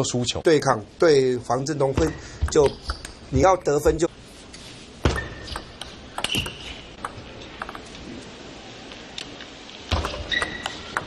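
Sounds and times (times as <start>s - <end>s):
shoe squeaks on floor: 6.2s - 6.8s, 10.2s - 10.9s.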